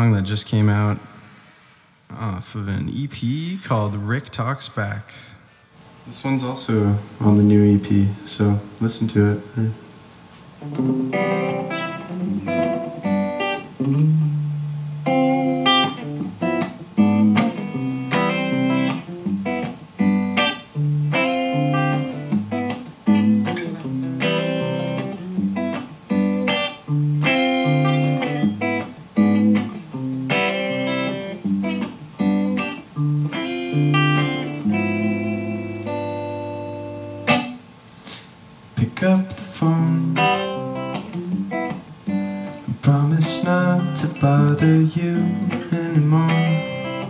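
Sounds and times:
drums: 9.8 - 36.4
bass guitar line: 10.6 - 37.5
electric guitar melodic line: 10.6 - 38.2, 38.8 - 47.0.

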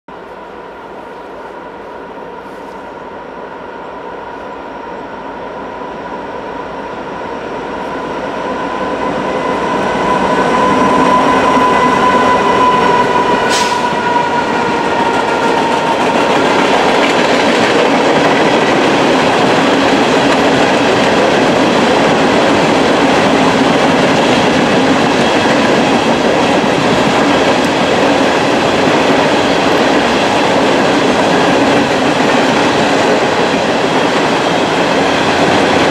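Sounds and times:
locomotive whine: 0.1 - 35.9
train wheels clattering on rails: 9.4 - 35.9.

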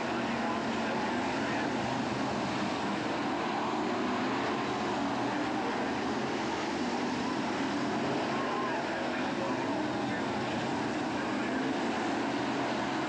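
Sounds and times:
racing car engines: 0.0 - 13.0.

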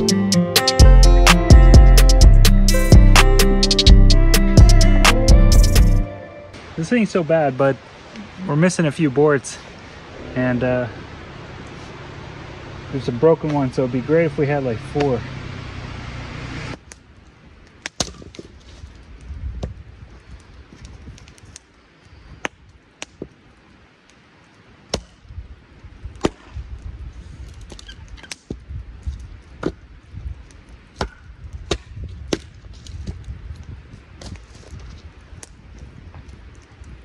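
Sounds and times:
axe chopping firewood: 17.8 - 18.6, 24.9 - 25.2, 26.2 - 26.6, 29.5 - 29.8, 30.9 - 33.2.

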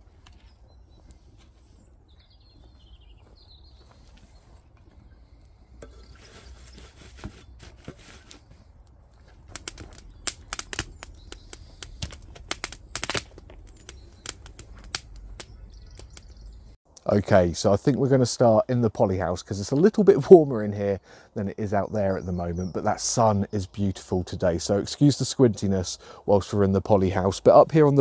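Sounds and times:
wood fire popping and crackling: 8.0 - 16.8.

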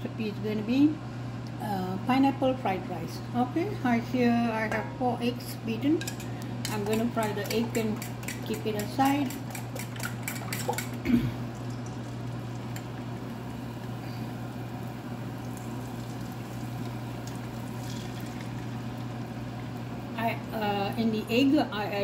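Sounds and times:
steady low hum: 0.0 - 22.0
eggs sizzling in a frying pan: 8.0 - 20.4.

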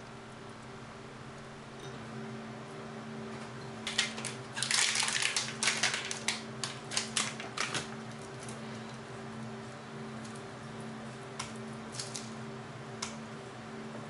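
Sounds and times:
steady low hum: 0.0 - 14.0
plastic food packet crackling: 3.9 - 8.0.

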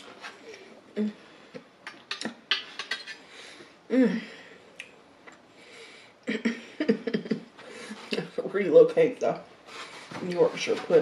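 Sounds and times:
person humming: 1.0 - 1.2, 3.9 - 4.5.

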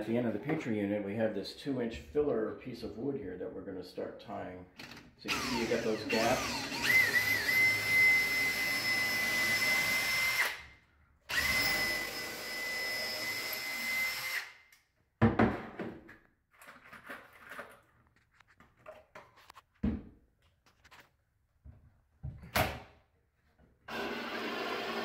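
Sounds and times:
cordless drill motor whining: 4.8 - 10.6, 11.3 - 14.6, 23.9 - 25.0.

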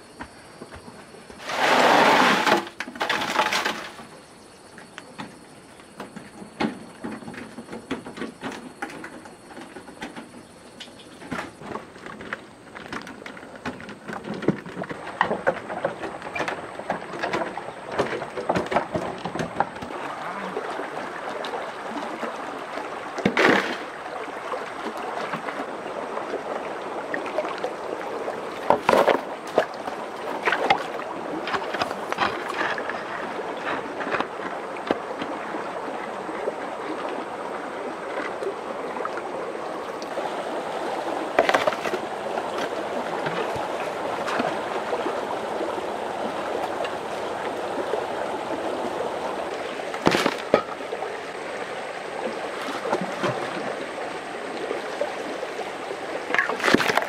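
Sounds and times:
knocks scrapes and clatter: 1.0 - 4.1, 28.6 - 35.2, 41.3 - 44.7.

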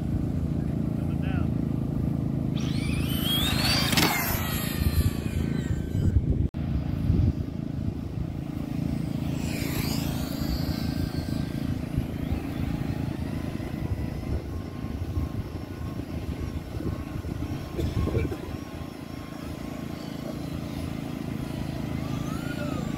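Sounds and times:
rc car motor whining: 2.5 - 6.4, 7.3 - 22.9
steady low rumble: 4.4 - 19.9.

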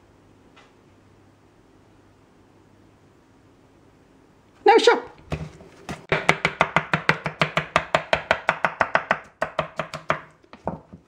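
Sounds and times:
knife chopping on wooden board: 5.3 - 11.0.

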